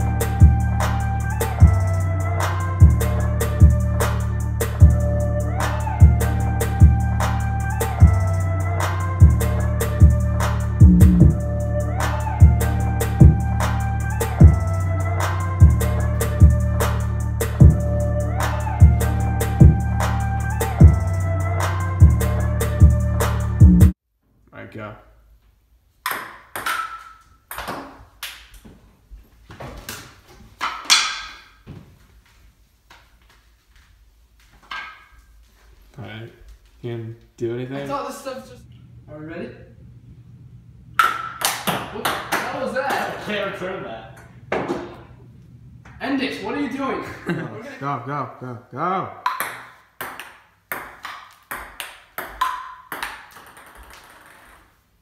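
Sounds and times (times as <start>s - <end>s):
table tennis ball hitting paddles: 26.0s - 28.6s, 41.0s - 43.0s, 49.2s - 54.7s.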